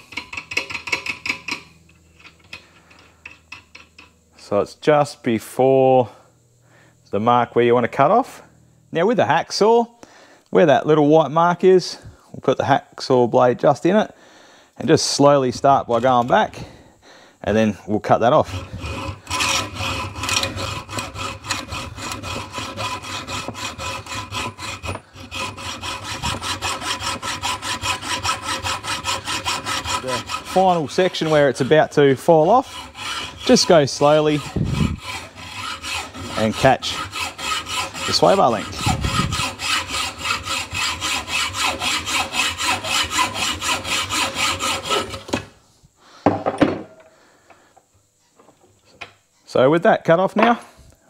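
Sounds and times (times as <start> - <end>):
hacksaw cutting steel: 0.0 - 4.1, 18.1 - 45.5.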